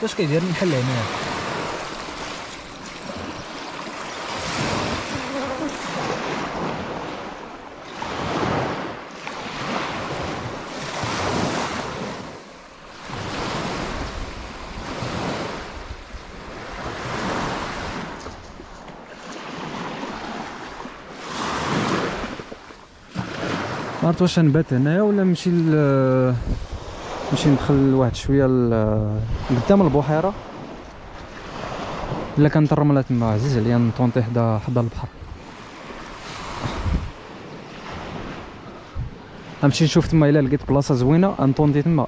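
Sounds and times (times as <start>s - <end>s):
small waves washing onto shore: 0.0s - 42.0s
wind on microphone: 1.1s - 20.4s, 26.1s - 32.4s, 33.1s - 40.1s.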